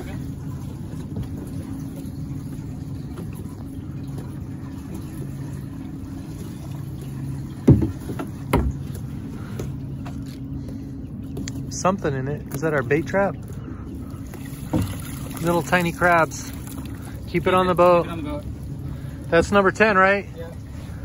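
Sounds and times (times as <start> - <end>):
outboard motor idling: 0.0 - 21.0
sharp knocks: 7.6 - 8.8.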